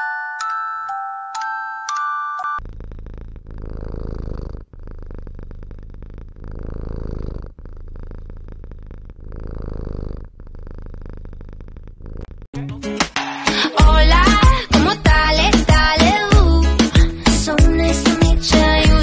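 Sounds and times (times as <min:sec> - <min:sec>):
cat purring: 0:02.6 - 0:12.5.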